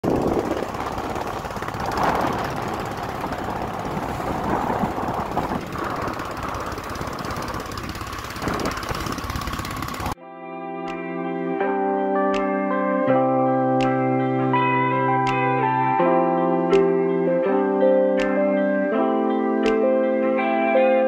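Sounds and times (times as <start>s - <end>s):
motorboat engine running: 0.0s - 10.2s
wind and water rushing: 0.0s - 10.2s
music: 10.2s - 21.0s.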